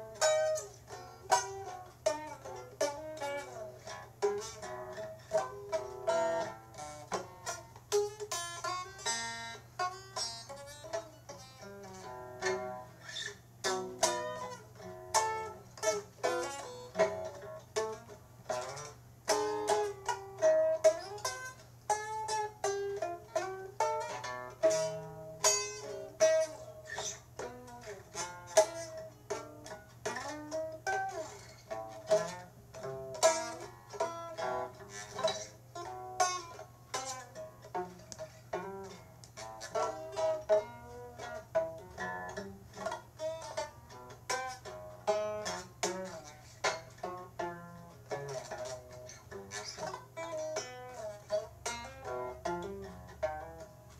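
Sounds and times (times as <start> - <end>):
faint steady hum: 0.0 - 53.9
plucked string instrument melody: 0.0 - 53.9.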